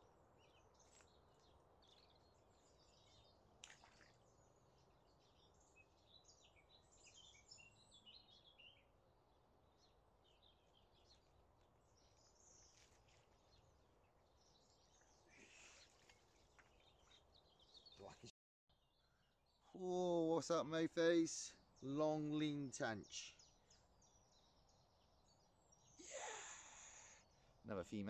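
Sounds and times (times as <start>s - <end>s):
songbirds chirping: 0.0s - 28.0s
net splashing into water: 3.6s - 4.3s.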